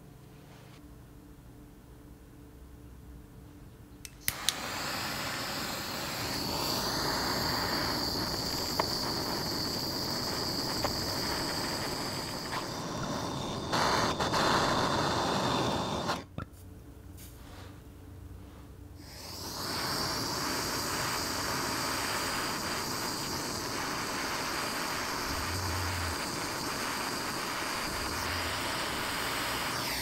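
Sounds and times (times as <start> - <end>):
gas torch igniter clicks: 4.0 - 16.3, 19.1 - 30.0
torch flame hissing: 4.2 - 16.3, 19.0 - 30.0.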